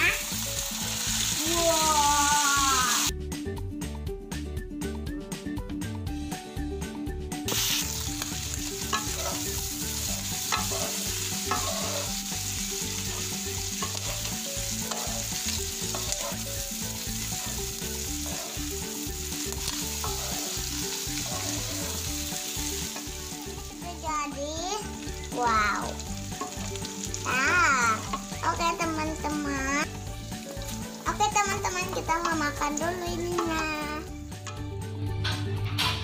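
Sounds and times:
food sizzling in hot oil: 0.0s - 3.1s, 7.5s - 34.3s
spatula scraping a wok: 8.8s - 17.1s, 17.8s - 23.1s.

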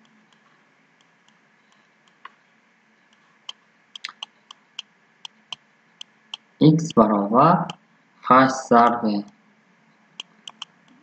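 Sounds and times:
stylus clicks and taps: 0.0s - 2.4s, 3.1s - 6.5s, 10.2s - 11.0s.

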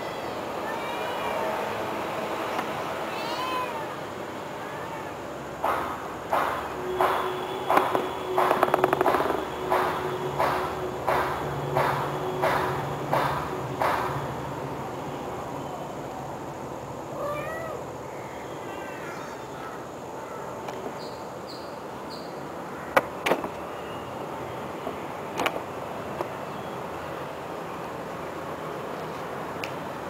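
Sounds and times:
cats meowing: 3.1s - 4.0s, 17.1s - 17.9s
sharp knocks: 5.6s - 14.3s.

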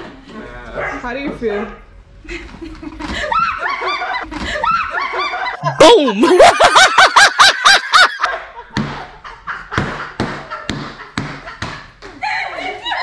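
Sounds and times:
woman laughing high-pitched: 2.5s - 8.4s.

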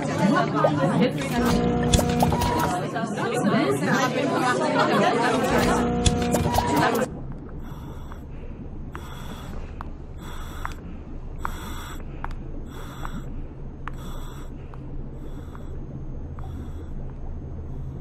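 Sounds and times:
steady low machine hum: 1.2s - 2.9s, 5.4s - 18.0s
hissing pulse and click: 1.3s - 2.8s, 5.4s - 8.3s.

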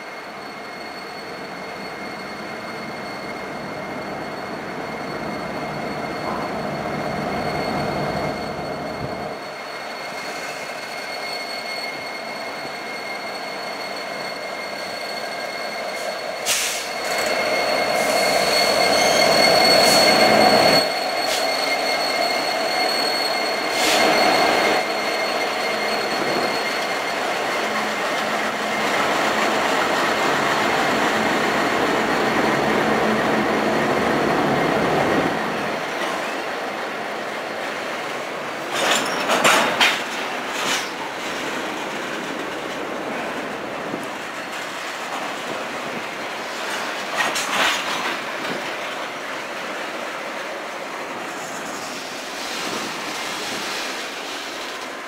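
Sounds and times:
high wheel squeal: 0.0s - 55.0s.

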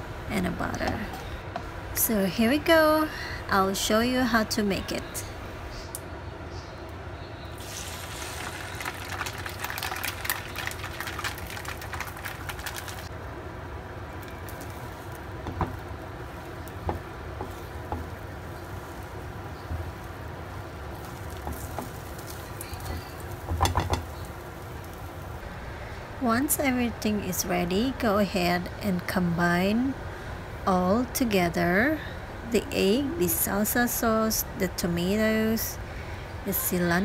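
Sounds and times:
eggs sizzling in frying pan: 7.6s - 25.8s
spatula knocking pan: 16.8s - 18.2s.

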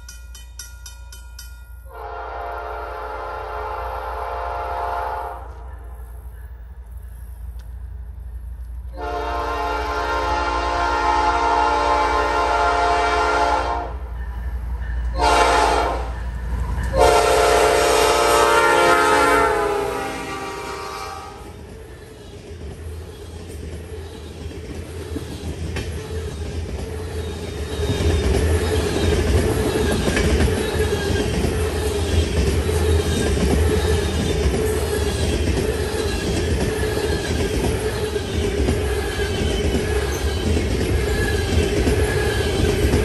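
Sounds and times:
train wheels rumbling and clattering: 0.0s - 43.0s
locomotive air horn blasts: 1.9s - 5.6s, 8.9s - 14.0s, 15.1s - 16.1s, 16.9s - 21.5s.

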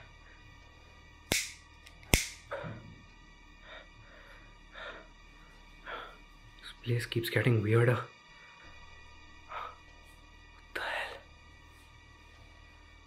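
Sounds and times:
lighter clicks: 1.3s - 2.5s.

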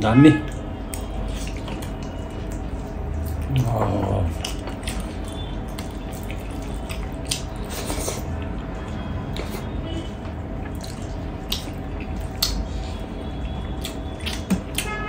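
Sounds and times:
wet chewing and mouth sounds: 0.4s - 15.0s.

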